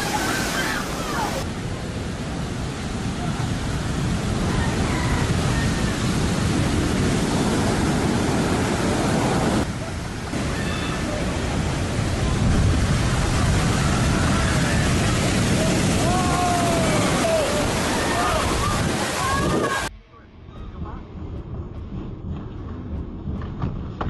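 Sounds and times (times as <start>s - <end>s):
waves breaking on rocks: 0.0s - 1.5s, 2.9s - 19.9s
whitewater rushing up beach: 0.0s - 19.9s.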